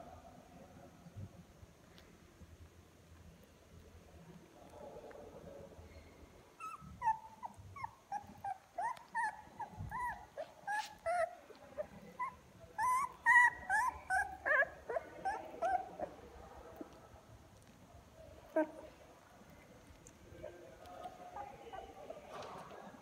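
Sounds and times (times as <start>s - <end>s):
puppies whimpering: 6.6s - 16.2s.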